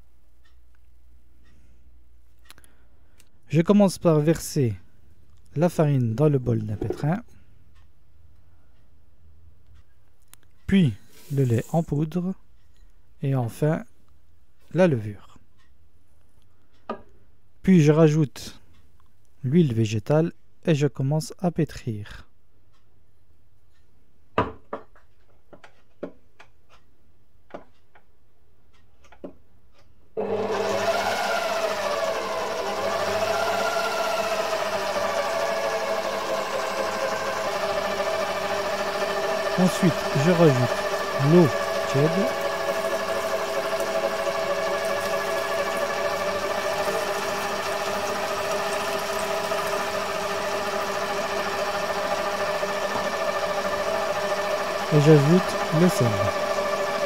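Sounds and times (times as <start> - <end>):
stand mixer motor whirring: 30.2 - 57.0.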